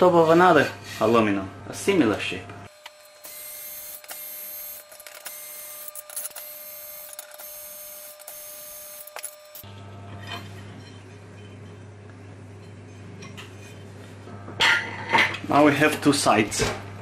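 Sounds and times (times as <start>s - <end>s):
electric screwdriver whirring: 2.7s - 9.6s.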